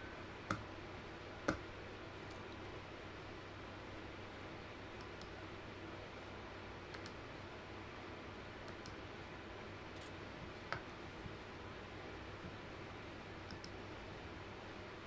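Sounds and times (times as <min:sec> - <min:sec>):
computer mouse clicks: 0:05.0 - 0:05.4, 0:06.9 - 0:07.2, 0:08.6 - 0:09.0, 0:13.5 - 0:13.8.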